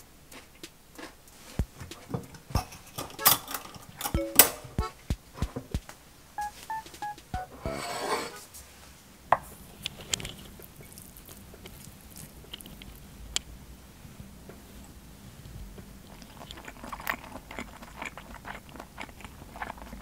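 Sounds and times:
short electronic beeps: 0:06.4 - 0:07.9.

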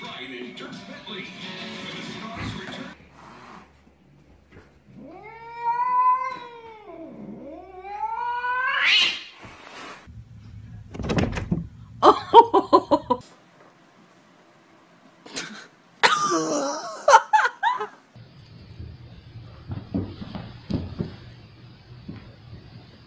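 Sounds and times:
cat yowling: 0:05.0 - 0:09.2.

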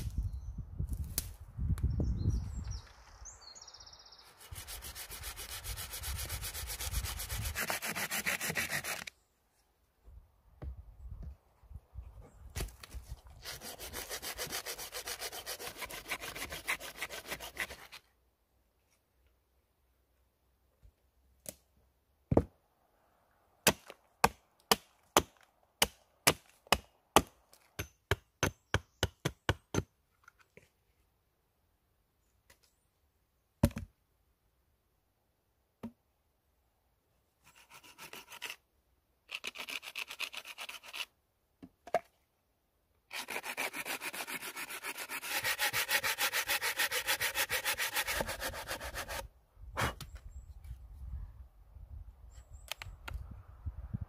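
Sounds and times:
hand saw cutting a log: 0:04.4 - 0:09.1, 0:13.3 - 0:18.0, 0:37.5 - 0:38.6, 0:39.3 - 0:41.1, 0:43.1 - 0:50.0
hatchet chopping into a log: 0:23.6 - 0:29.8.

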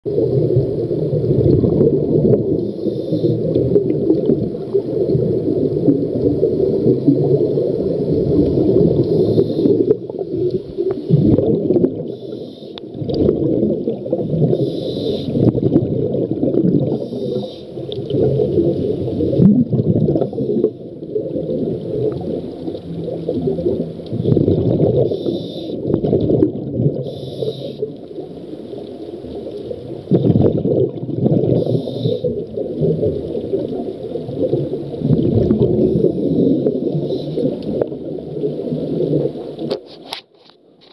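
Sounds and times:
underwater regulator breathing: 0:02.6 - 0:03.7, 0:09.0 - 0:10.0, 0:12.1 - 0:13.0, 0:14.4 - 0:15.6, 0:16.9 - 0:17.9, 0:25.0 - 0:25.9, 0:27.0 - 0:27.9, 0:31.5 - 0:32.3, 0:35.7 - 0:37.7.

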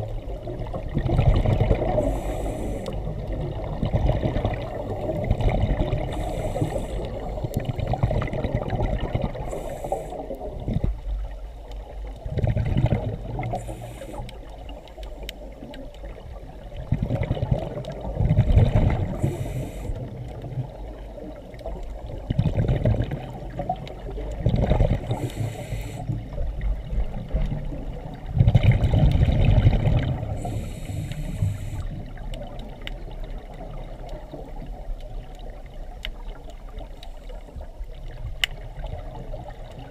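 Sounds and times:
exhaled bubbles underwater: 0:00.0 - 0:39.9
regulator inhalation hiss: 0:02.0 - 0:03.1, 0:06.1 - 0:07.5, 0:09.5 - 0:10.3, 0:13.5 - 0:14.5, 0:19.1 - 0:20.0, 0:25.1 - 0:26.2, 0:30.4 - 0:32.0.

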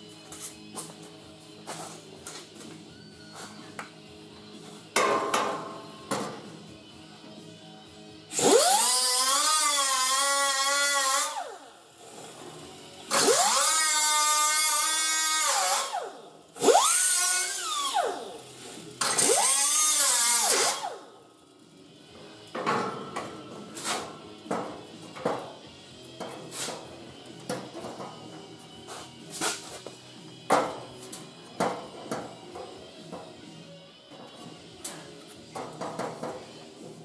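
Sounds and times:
cutoff tool whining through steel: 0:08.3 - 0:12.4, 0:13.0 - 0:21.1.

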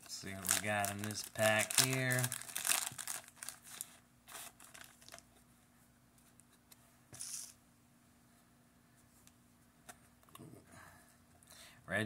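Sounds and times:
plastic wrapper crinkling: 0:00.2 - 0:05.3.

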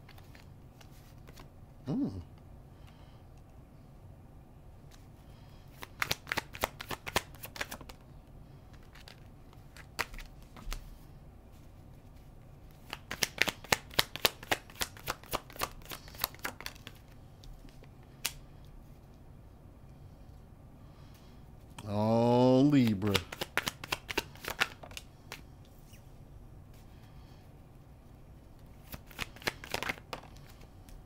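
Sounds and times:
cards being shuffled: 0:00.0 - 0:01.5, 0:05.7 - 0:08.0, 0:08.7 - 0:11.0, 0:11.6 - 0:18.4, 0:22.7 - 0:26.0, 0:28.5 - 0:31.0.

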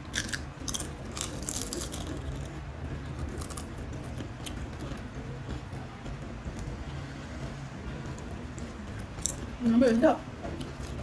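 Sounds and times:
steady low hum: 0:00.0 - 0:11.0
potato chips being crunched: 0:00.2 - 0:02.4.

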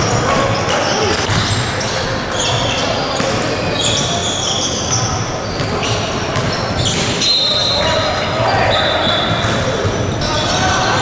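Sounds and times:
sneakers squeaking: 0:00.0 - 0:11.0
basketball bouncing: 0:05.6 - 0:07.2.

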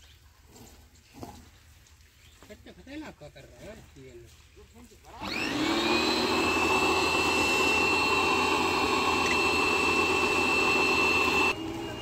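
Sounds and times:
pressure washer motor whine: 0:05.1 - 0:12.0.

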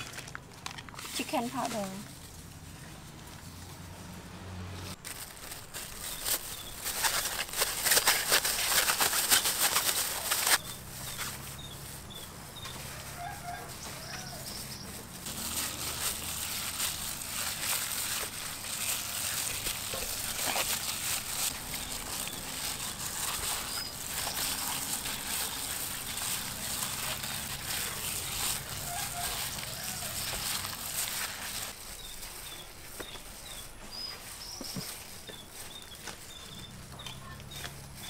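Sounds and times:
plastic glove rustle: 0:00.0 - 0:04.2, 0:04.9 - 0:38.0.

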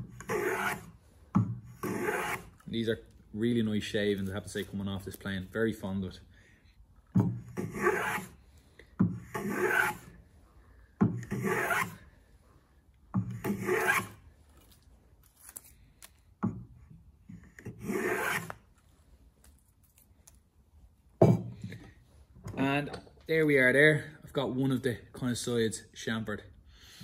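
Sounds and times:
hand plane rasping on wood: 0:00.2 - 0:01.0, 0:01.8 - 0:02.6, 0:07.5 - 0:08.4, 0:09.2 - 0:10.1, 0:11.2 - 0:12.0, 0:13.4 - 0:14.2, 0:17.8 - 0:18.6.

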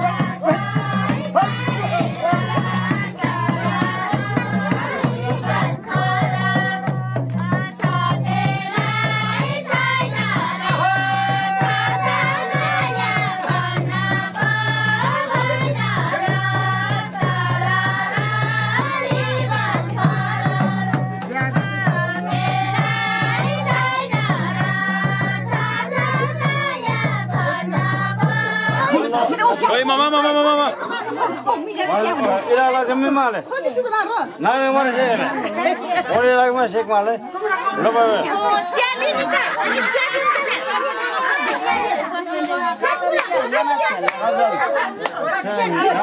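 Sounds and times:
hand drum beating: 0:00.0 - 0:29.6
voices singing folk song: 0:00.0 - 0:33.3, 0:37.2 - 0:46.0.

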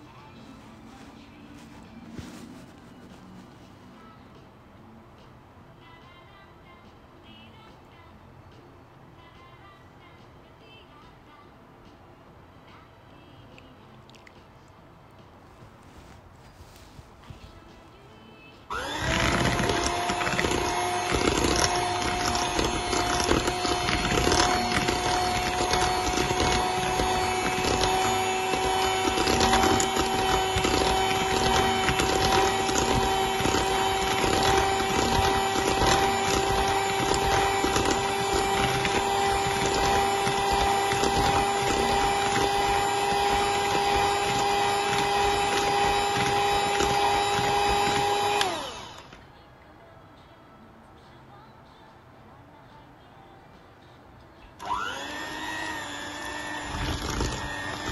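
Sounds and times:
electric mixer motor hum: 0:18.7 - 0:49.1, 0:54.6 - 0:57.9.

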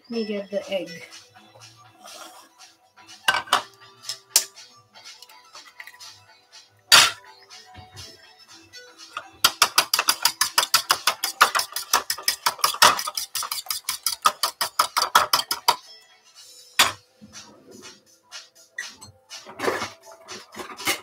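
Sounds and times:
fork beating egg in bowl: 0:09.4 - 0:15.8.

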